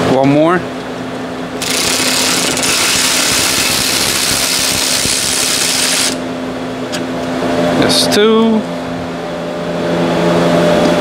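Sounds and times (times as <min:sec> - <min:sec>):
power tool hissing burst: 0:01.6 - 0:06.2.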